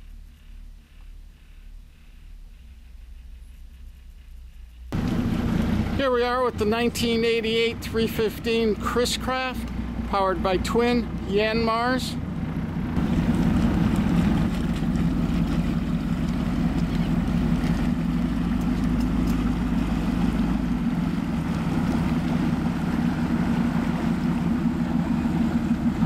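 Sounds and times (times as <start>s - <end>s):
boat engine low drone: 0.0s - 26.0s
wind and water rushing: 12.9s - 26.0s.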